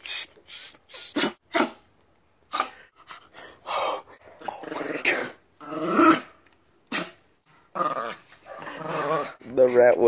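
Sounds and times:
dog growling: 3.5s - 9.9s.

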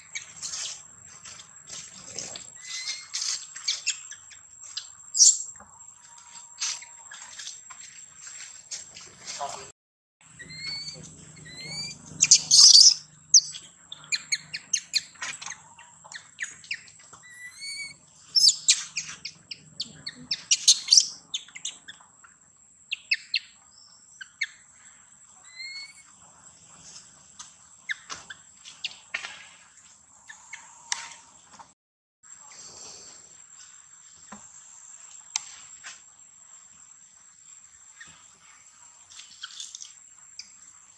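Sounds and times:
high insect trill: 0.0s - 9.7s, 32.3s - 40.9s
baby monkey crying: 10.4s - 13.6s, 17.2s - 21.2s.

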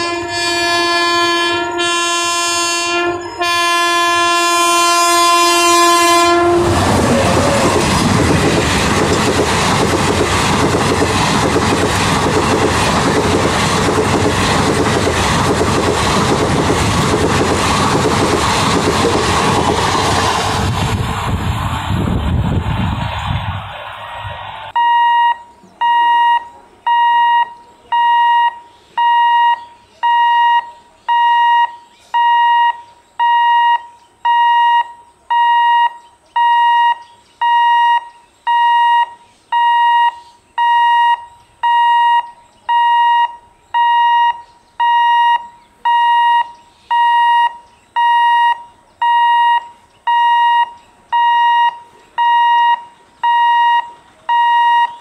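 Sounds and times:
level crossing warning beeps: 24.8s - 55.0s.

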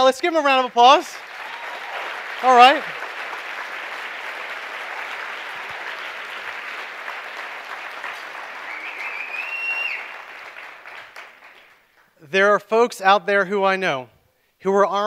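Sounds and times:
audience applauding: 0.6s - 12.1s
high whistle: 8.6s - 10.2s.

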